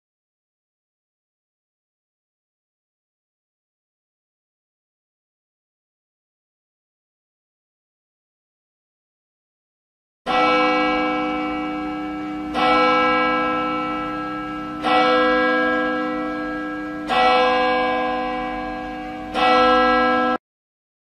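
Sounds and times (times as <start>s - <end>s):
church bell tolling: 10.3s - 20.4s.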